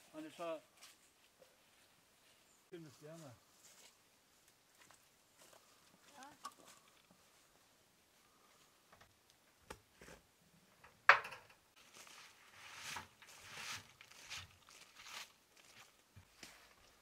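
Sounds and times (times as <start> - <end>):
leaves and boards rustling scraping: 11.7 - 17.0.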